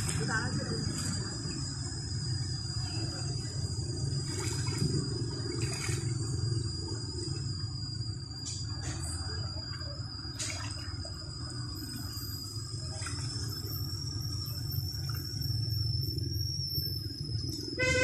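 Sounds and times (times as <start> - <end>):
wading through mud and water: 0.0 - 7.5, 9.6 - 16.2
high-pitched electrical whine: 0.0 - 18.0.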